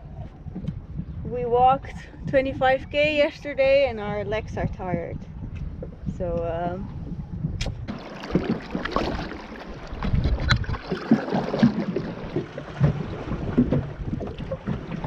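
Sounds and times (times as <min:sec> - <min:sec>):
wind buffeting microphone: 0:00.0 - 0:15.0
oars dipping and splashing: 0:07.7 - 0:15.0.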